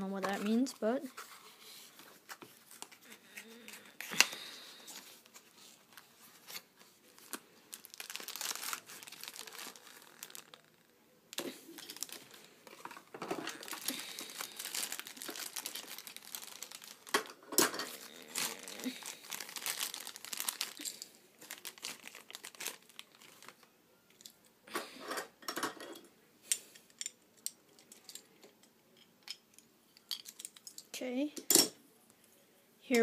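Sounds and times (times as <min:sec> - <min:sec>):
plastic bag crinkling: 0:02.6 - 0:23.7.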